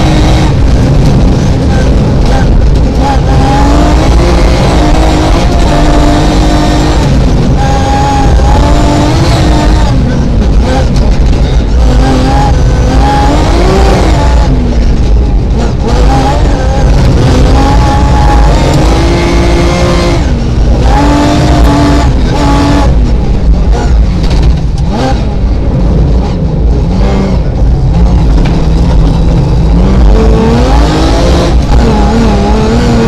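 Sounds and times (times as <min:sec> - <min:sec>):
rally car engine accelerating: 0:00.0 - 0:33.0.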